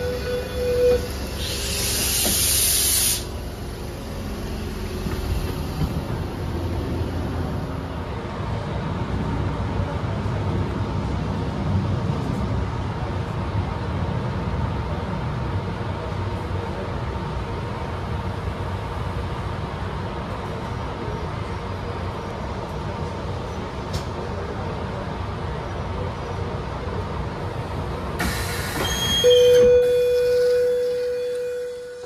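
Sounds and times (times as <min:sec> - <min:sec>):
electric train humming: 0:00.0 - 0:11.5, 0:25.6 - 0:32.0
air hissing: 0:01.2 - 0:03.4, 0:28.2 - 0:29.2.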